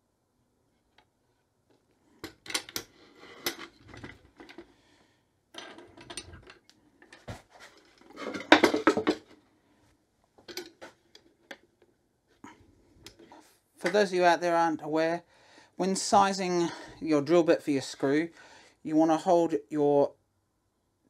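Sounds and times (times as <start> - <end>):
metal clamps clicking and rattling: 2.2 - 4.7, 5.6 - 9.3, 10.4 - 11.6.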